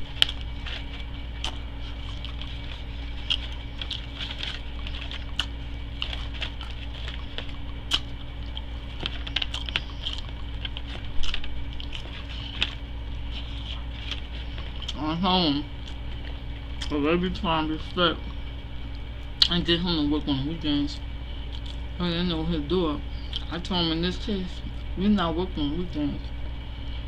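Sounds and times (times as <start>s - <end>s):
aluminium foil crinkling: 0.0s - 15.0s
chewing and mouth sounds: 0.0s - 15.0s, 15.7s - 17.0s, 21.4s - 21.9s, 23.2s - 23.5s
steady low hum: 0.0s - 27.0s.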